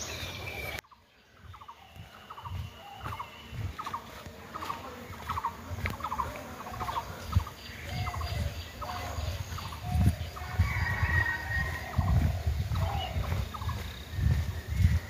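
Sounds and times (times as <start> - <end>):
poultry rattling calls: 2.3 - 15.0
dull low thumps: 6.8 - 15.0.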